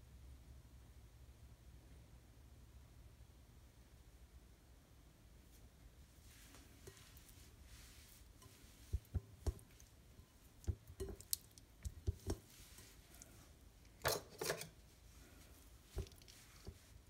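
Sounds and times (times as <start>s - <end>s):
rustling scrape: 5.5s - 11.4s, 12.1s - 17.0s.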